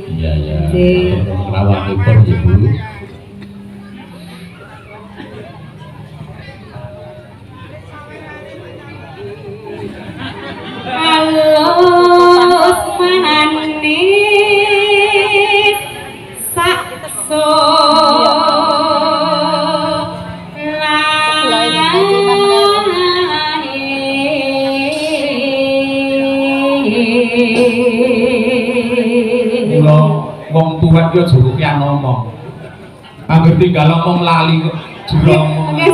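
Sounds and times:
woman singing long held notes: 10.8 - 29.8.

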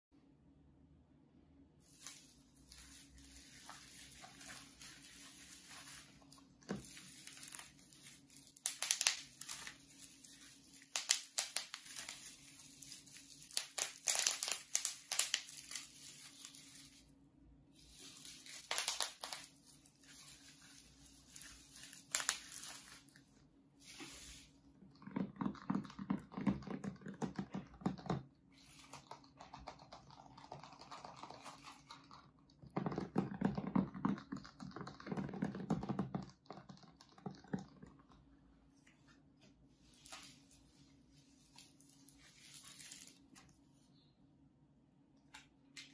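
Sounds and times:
bubble wrap crinkling: 1.8 - 24.6, 39.8 - 43.8.

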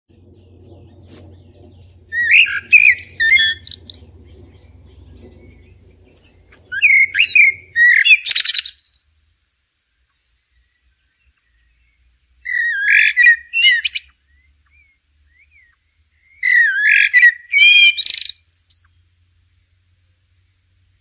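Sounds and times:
blackbird singing: 0.1 - 9.0, 10.2 - 19.0
faint low hum: 0.1 - 12.5.

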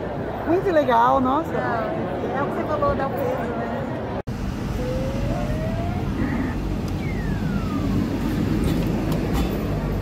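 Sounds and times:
rising electronic tone: 4.3 - 8.6
falling electronic swoop: 4.5 - 8.6
arcade machines and crowd din: 4.8 - 10.0.

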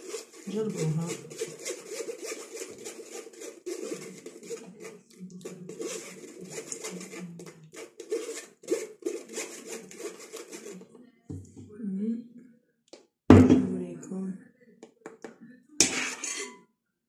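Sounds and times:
metal spoon scraping through sieve: 0.0 - 10.9, 15.8 - 16.6.

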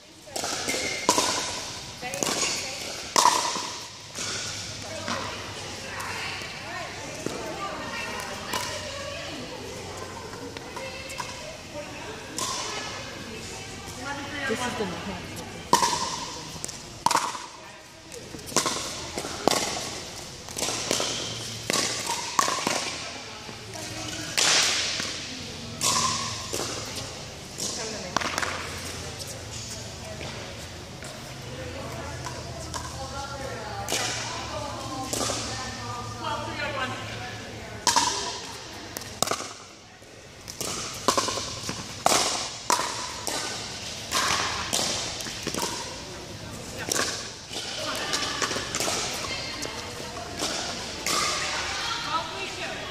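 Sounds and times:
ball bouncing on court: 0.3 - 6.1, 12.3 - 13.0, 15.6 - 31.2, 37.8 - 39.8, 40.4 - 46.1, 46.8 - 51.8
pickleball popping off paddles: 0.4 - 5.3, 15.7 - 17.5, 18.4 - 23.0, 27.6 - 28.9, 37.8 - 39.6, 40.4 - 46.0, 46.8 - 49.7.

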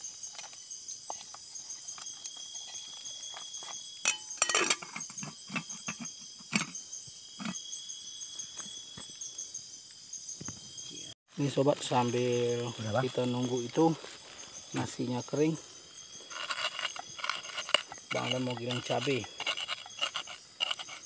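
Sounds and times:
night insects trilling: 0.0 - 21.0
metal pot lid clattering: 4.0 - 6.8.

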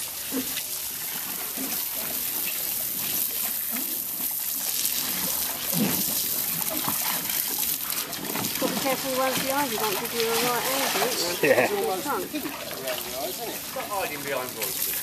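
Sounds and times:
hose water spraying and splashing: 0.0 - 15.0.

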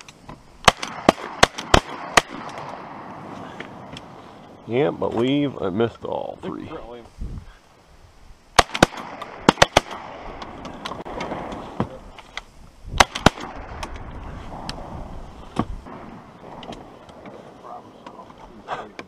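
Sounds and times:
shotgun blasts: 0.6 - 3.9, 8.6 - 12.0, 12.9 - 14.9, 15.5 - 17.2.

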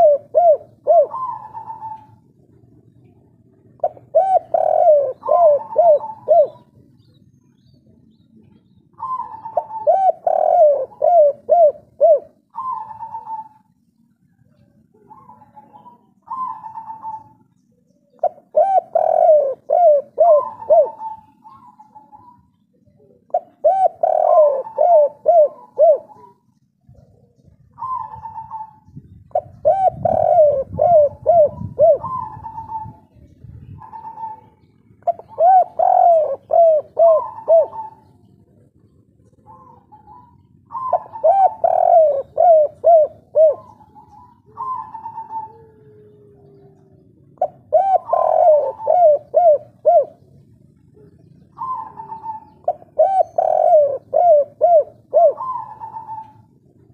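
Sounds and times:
dove cooing: 0.0 - 56.9.

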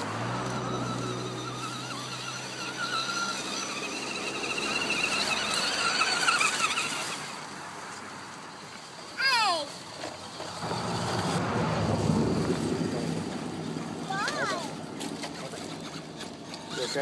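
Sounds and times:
electric motor whining: 0.0 - 7.5
motor spinning down: 0.0 - 7.7, 10.3 - 17.0.

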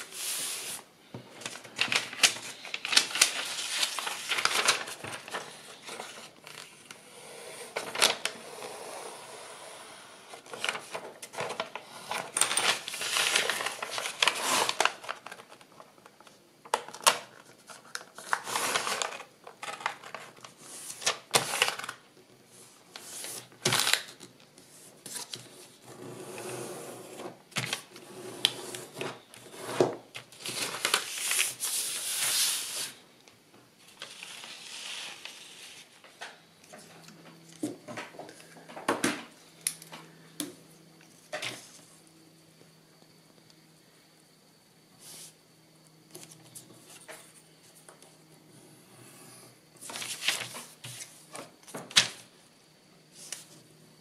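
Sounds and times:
paper rustling and crackling: 0.0 - 7.0, 7.7 - 8.4, 10.4 - 22.0, 22.9 - 24.4, 30.1 - 33.0, 33.9 - 36.1, 49.8 - 52.2.

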